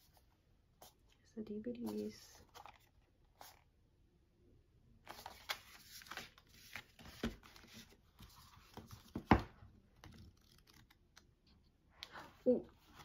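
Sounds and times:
cardboard and paper rustling: 1.9 - 3.6, 5.1 - 11.0.

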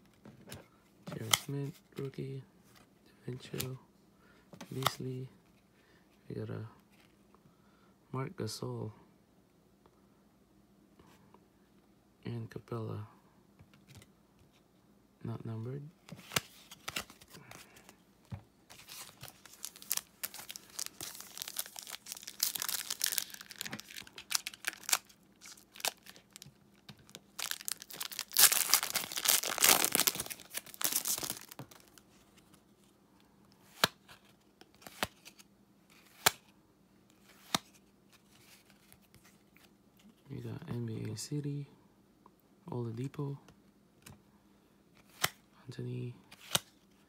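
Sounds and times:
foil wrapper crinkling and tearing: 18.8 - 32.0.

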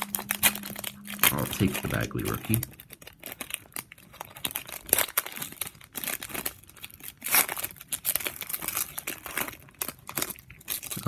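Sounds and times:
foil wrapper crinkling: 0.0 - 11.0.

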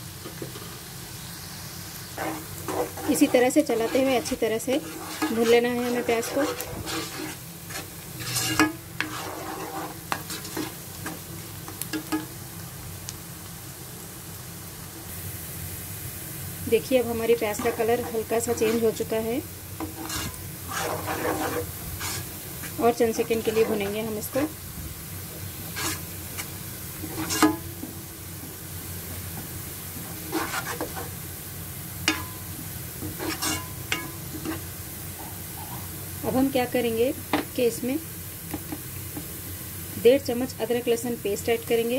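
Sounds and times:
onions sizzling in oil: 0.0 - 41.9
spatula scraping and tapping pan: 2.2 - 12.3, 17.5 - 19.0, 19.8 - 24.5, 25.7 - 31.2, 32.0 - 32.4, 33.0 - 35.8.

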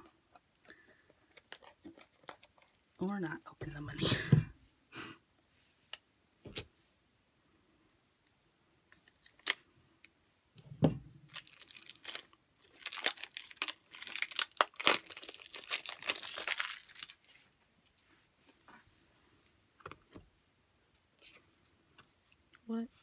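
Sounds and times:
plastic wrap crinkling and tearing: 1.2 - 3.1, 8.9 - 9.6, 11.3 - 17.5
low thump: 10.7 - 11.1.

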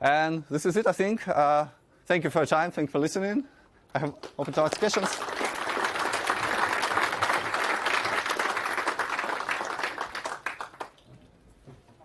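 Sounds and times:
audience applauding: 4.0 - 11.0.

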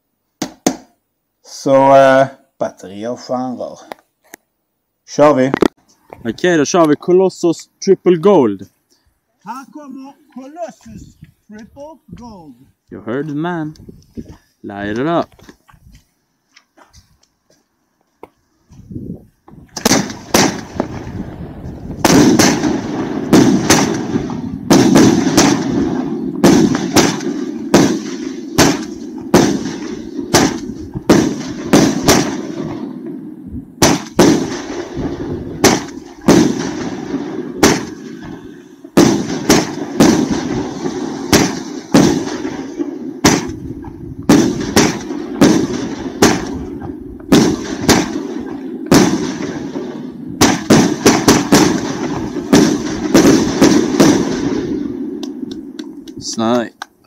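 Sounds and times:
firework shots bursting: 0.4 - 1.0, 19.7 - 55.9.

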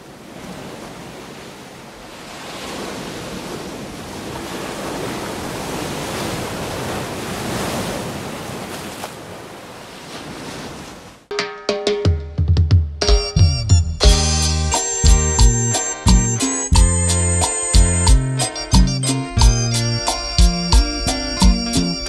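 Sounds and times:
ocean waves surf: 0.0 - 11.3.

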